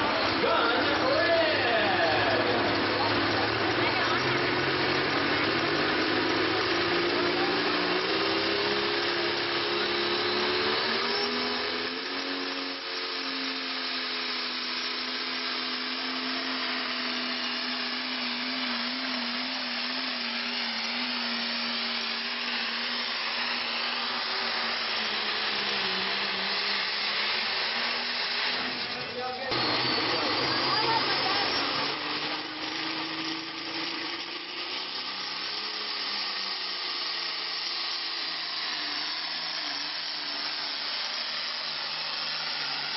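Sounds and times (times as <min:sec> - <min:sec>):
tractor diesel engine at full throttle: 0:00.0 - 0:42.9.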